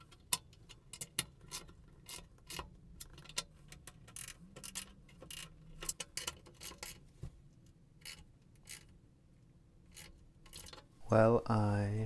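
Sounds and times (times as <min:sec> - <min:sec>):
ratchet wrench clicking: 0:04.1 - 0:07.0, 0:09.9 - 0:10.8.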